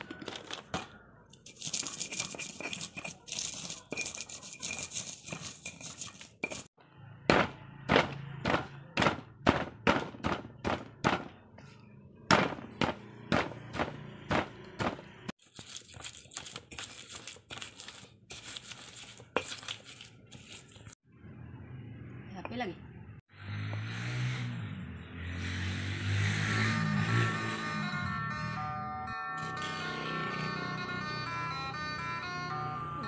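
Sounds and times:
stone pestle pounding in mortar: 7.3s - 11.3s, 12.3s - 15.3s.

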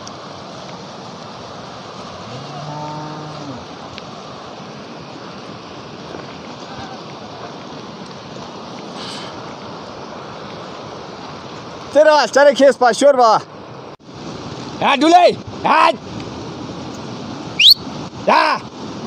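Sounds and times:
mountain stream rushing: 0.0s - 19.0s
cow mooing: 2.2s - 3.7s.

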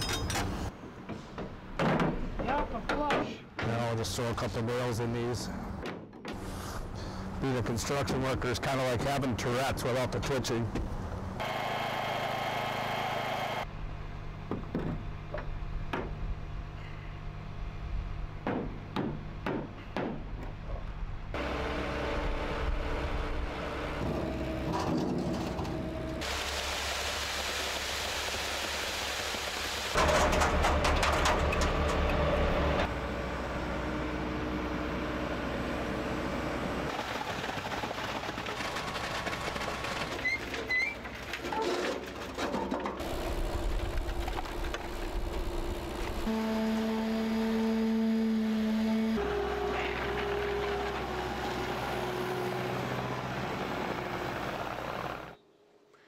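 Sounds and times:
small gasoline engine running: 11.4s - 13.7s, 33.7s - 40.2s, 43.0s - 55.4s
hammer blows on wooden forms: 18.4s - 20.8s.

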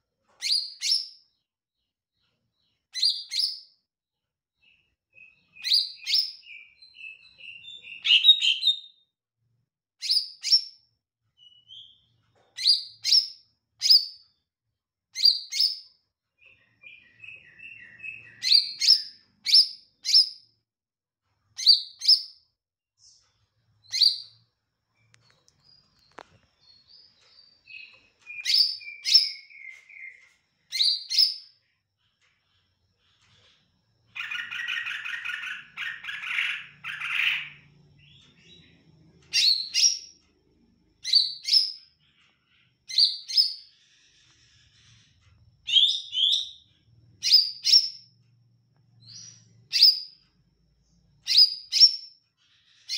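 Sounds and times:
bird chirping and warbling: 4.6s - 9.0s, 15.2s - 20.4s, 23.8s - 24.4s, 25.0s - 31.5s, 34.1s - 40.1s, 41.0s - 48.0s, 51.2s - 52.9s.

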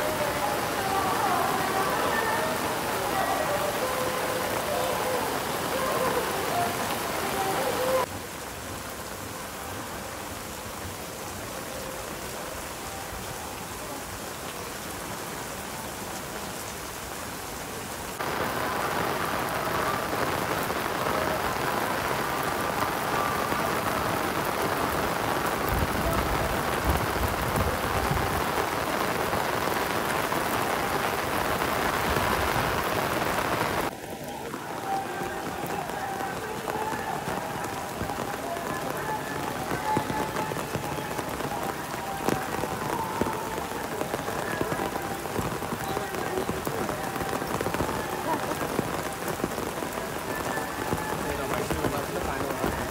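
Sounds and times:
heavy rain on pavement: 0.0s - 52.9s.

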